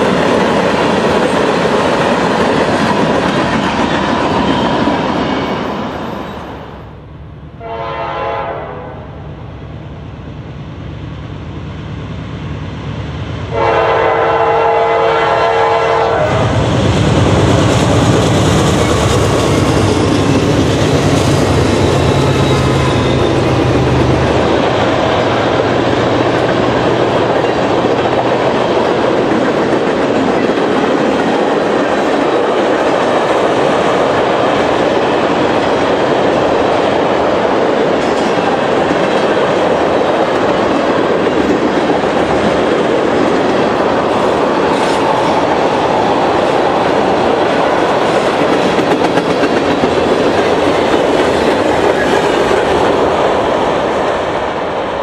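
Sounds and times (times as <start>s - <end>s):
diesel locomotive engine drone: 0.0s - 55.0s
steel wheels rolling on rails: 16.4s - 55.0s.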